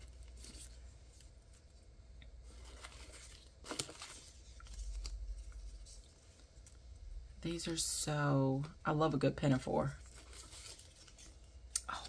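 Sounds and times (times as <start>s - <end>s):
plastic strips rustling and crinkling: 0.0s - 6.9s, 9.8s - 12.0s.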